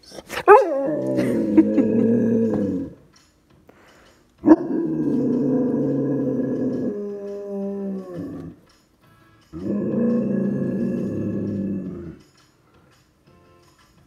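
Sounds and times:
dog howling: 0:00.5 - 0:03.0, 0:04.4 - 0:08.6, 0:09.6 - 0:12.2.

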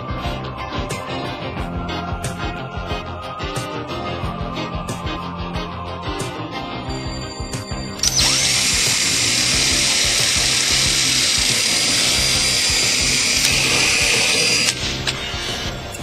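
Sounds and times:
background music: 0:00.0 - 0:16.0
cordless drill drilling: 0:08.0 - 0:15.8.

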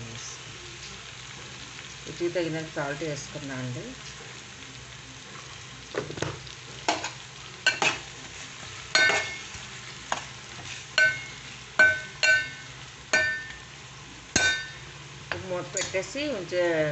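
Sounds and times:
faint frying sizzle: 0:00.0 - 0:16.9
metal spoon clinking on pan: 0:06.9 - 0:08.0, 0:08.9 - 0:09.6, 0:11.0 - 0:13.7, 0:14.3 - 0:16.0.

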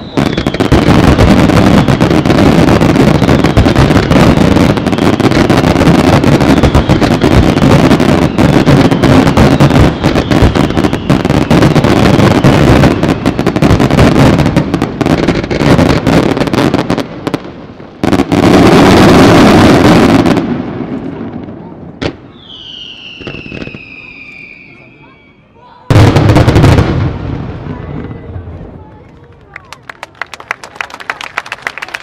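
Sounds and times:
fireworks bursting and crackling: 0:00.0 - 0:32.0.

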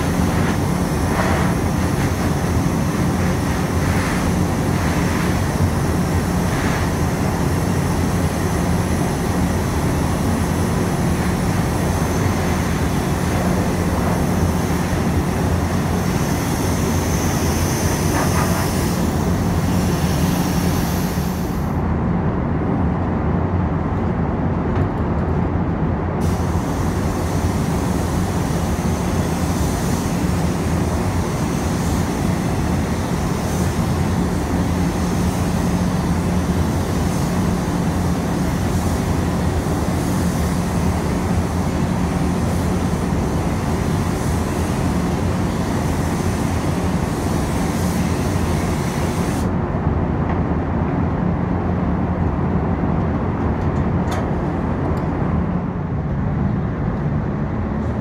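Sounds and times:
paint spray gun hissing: 0:00.0 - 0:21.7, 0:26.2 - 0:49.5
fans humming: 0:00.0 - 0:58.0.

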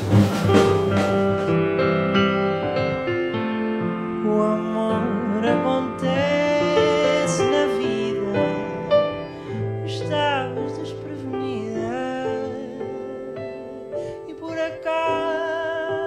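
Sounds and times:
grand piano: 0:00.0 - 0:16.0
man singing: 0:04.0 - 0:16.0.

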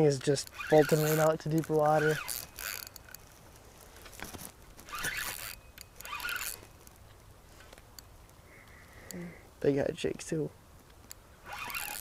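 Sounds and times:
fishing reel drag buzzing: 0:00.0 - 0:03.3, 0:04.8 - 0:06.9, 0:11.4 - 0:12.0.

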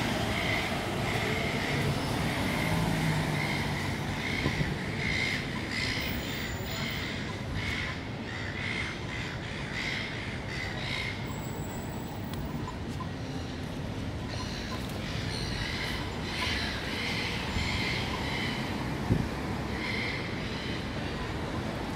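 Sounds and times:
vehicle engine passing: 0:00.0 - 0:04.6
street traffic hum: 0:00.0 - 0:21.9.

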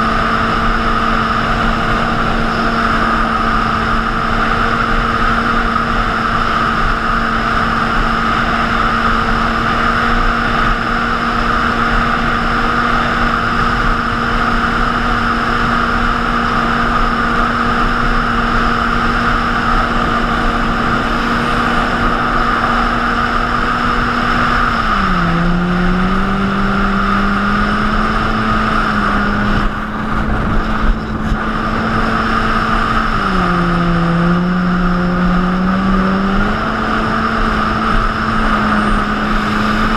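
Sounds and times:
jet ski engine: 0:00.0 - 0:39.9
wind: 0:00.0 - 0:39.9
water rushing: 0:38.0 - 0:39.9.

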